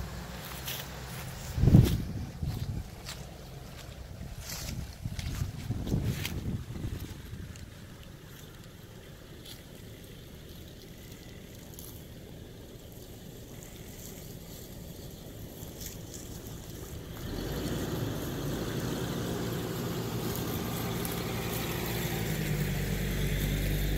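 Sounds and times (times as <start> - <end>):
car engine revving: 15.8 - 23.9.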